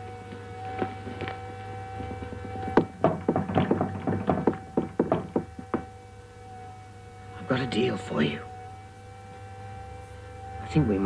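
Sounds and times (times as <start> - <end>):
sharp knocks and taps: 2.0 - 6.0.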